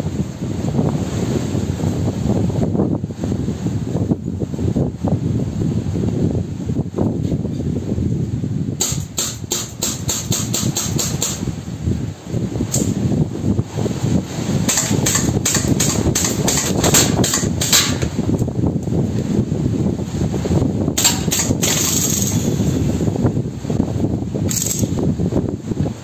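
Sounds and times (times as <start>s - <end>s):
wind buffeting microphone: 0.0s - 26.0s
bb pistol shots: 14.7s - 18.1s, 21.0s - 22.4s.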